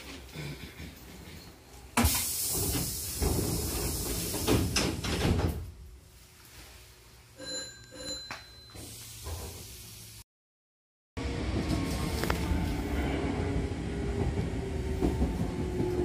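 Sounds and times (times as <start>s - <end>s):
loud hiss of air: 2.0s - 4.8s
sliding doors rumbling shut: 2.0s - 5.8s, 11.2s - 13.3s.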